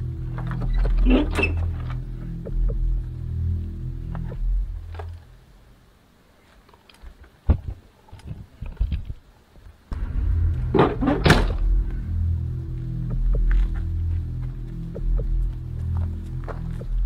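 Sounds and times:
low droning music: 0.0s - 5.9s, 9.9s - 17.0s
car door slamming: 10.7s - 11.8s.

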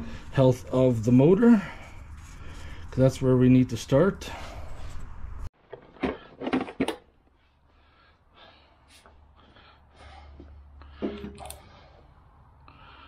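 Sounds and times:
person breathing: 0.0s - 0.4s, 1.5s - 3.0s, 4.2s - 5.2s, 7.4s - 13.0s.

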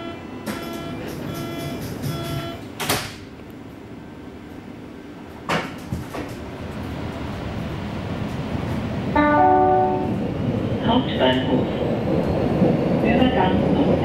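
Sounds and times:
door-closing warning beeps: 0.0s - 2.7s
low train hum: 0.0s - 14.0s.

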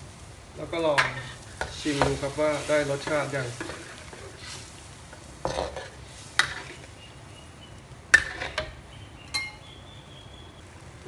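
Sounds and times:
metal ladle scraping a wok: 1.0s - 4.7s, 5.4s - 6.9s, 8.1s - 8.8s.

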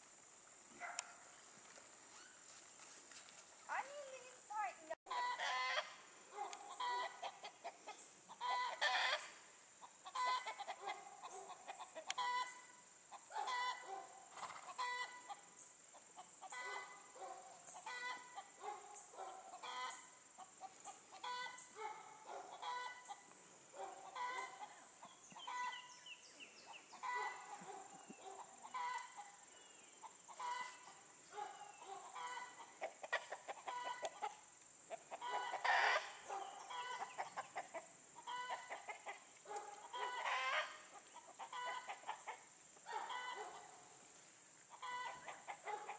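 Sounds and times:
chickens clucking: 5.1s - 26.0s, 26.6s - 43.8s, 44.6s - 45.9s.

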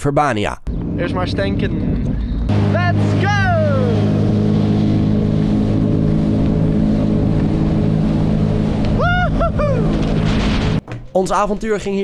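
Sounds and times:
jet ski engine running: 0.7s - 10.8s
water rushing: 2.5s - 10.8s
person shouting: 2.7s - 4.2s, 9.0s - 10.0s.

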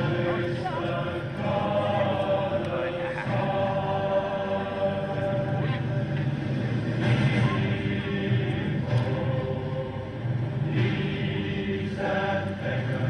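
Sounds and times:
steady low hum: 0.0s - 13.0s
voices chanting in held notes: 0.0s - 13.0s.

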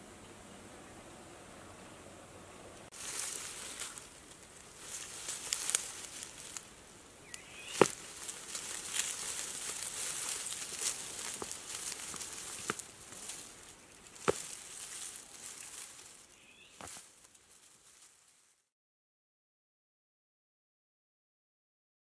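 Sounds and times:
faint outdoor ambience: 0.0s - 18.7s
dry grass crackling and rustling: 2.9s - 18.7s.

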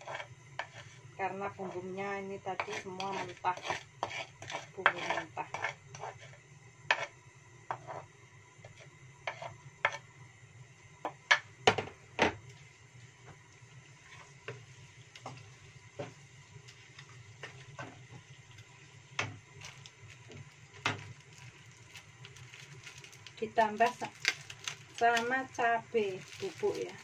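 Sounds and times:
wooden spatula scraping a wok: 0.0s - 10.1s, 14.0s - 18.3s.

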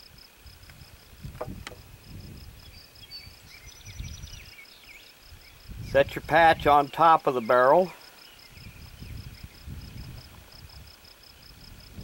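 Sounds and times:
insect chirping: 0.0s - 12.0s.

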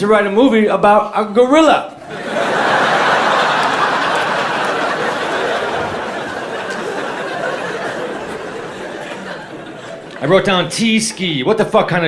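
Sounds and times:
audience laughing: 2.0s - 10.4s.

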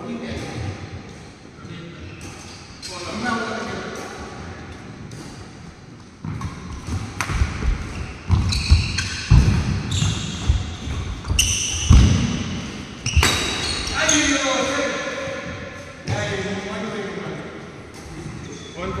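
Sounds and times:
shoe soles squeaking: 2.0s - 4.0s, 5.0s - 16.2s
rackets hitting shuttlecock: 3.8s - 16.2s.

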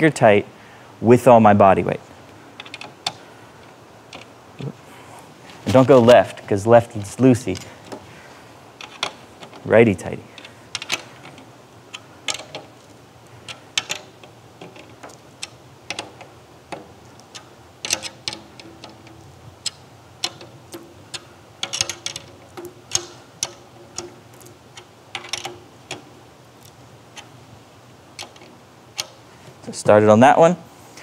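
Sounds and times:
drum key clicking on tension rods: 13.4s - 26.1s, 28.2s - 29.2s.

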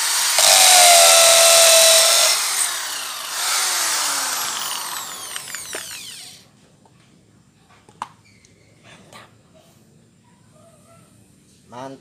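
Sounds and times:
drill motor spinning down: 0.0s - 6.4s.

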